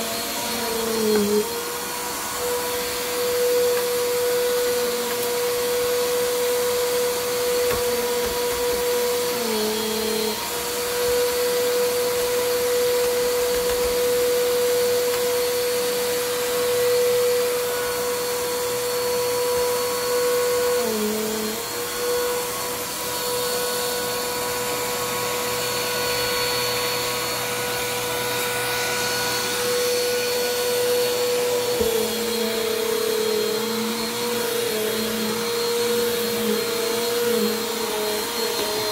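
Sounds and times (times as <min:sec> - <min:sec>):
vacuum cleaner motor whining: 0:00.0 - 0:38.9.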